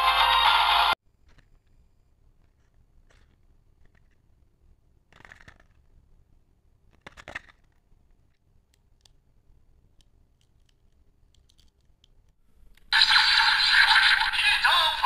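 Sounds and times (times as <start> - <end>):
plastic toy clicks: 10.0 - 12.3
toy synthetic voice with music: 13.0 - 15.0.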